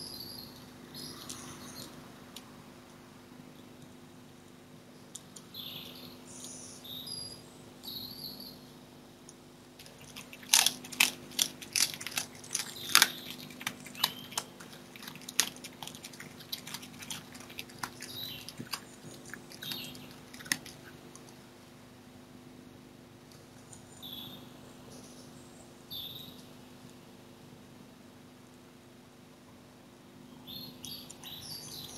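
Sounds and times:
birds singing: 0.0s - 2.0s, 5.4s - 8.8s, 9.9s - 21.0s, 23.7s - 26.5s, 30.3s - 31.9s
low steady hum: 0.0s - 31.9s
fox chewing meat: 9.7s - 21.4s.

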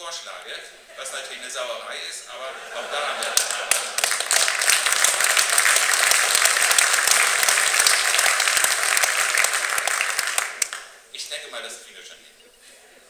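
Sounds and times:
audience applause: 2.8s - 10.9s.

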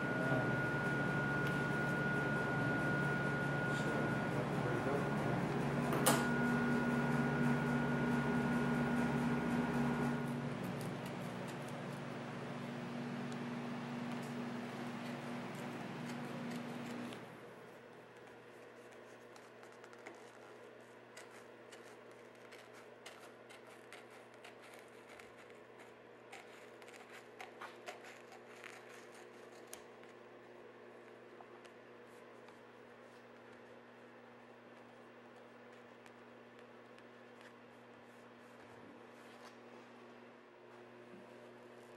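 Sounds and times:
thin high whine: 0.0s - 17.5s
machine hum: 0.0s - 18.3s
steady low hum: 0.0s - 41.9s
material crinkling: 17.8s - 30.3s.

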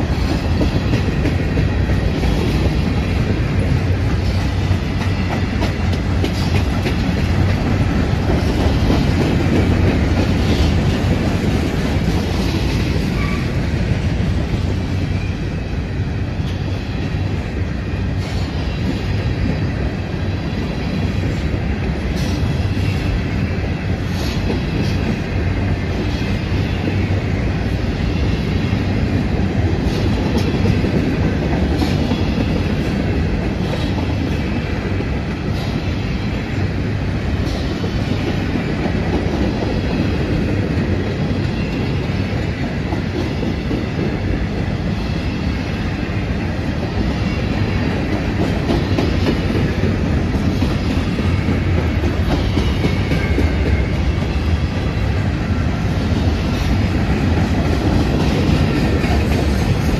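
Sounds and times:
clicks and knocks from train cars: 0.0s - 13.7s, 29.1s - 35.9s, 46.6s - 55.1s, 56.0s - 59.9s
train wheels rumbling on rail: 0.0s - 59.9s.

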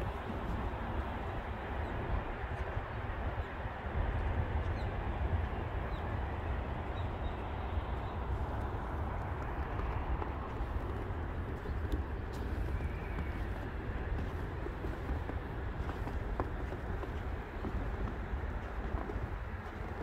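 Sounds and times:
steady low rumble: 0.0s - 20.0s
footsteps crunching through snow: 10.1s - 20.0s.

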